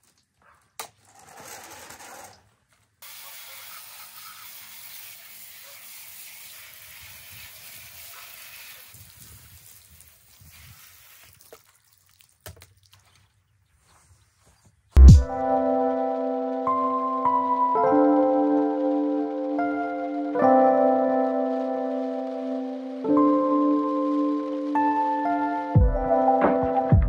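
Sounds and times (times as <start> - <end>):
garden hose spraying water: 3.0 - 13.4.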